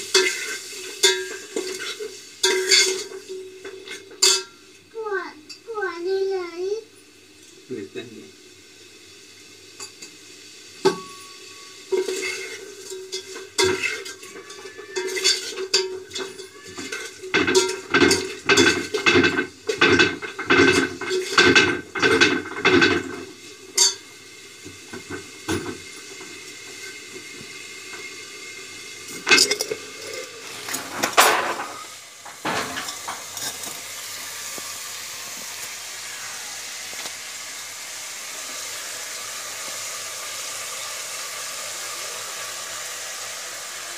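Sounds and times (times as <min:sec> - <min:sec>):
pot ringing: 0:00.0 - 0:04.6, 0:10.9 - 0:23.1, 0:23.7 - 0:24.1, 0:29.2 - 0:30.5
utensils clinking in steel pot: 0:00.0 - 0:04.6, 0:10.9 - 0:24.0, 0:29.1 - 0:34.1
steady hiss: 0:00.0 - 0:43.9.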